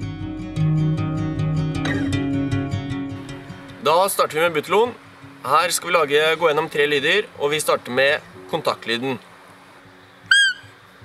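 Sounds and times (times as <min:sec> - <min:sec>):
steady bass line: 0:00.0 - 0:03.7
acoustic guitar plucked notes: 0:00.0 - 0:05.5.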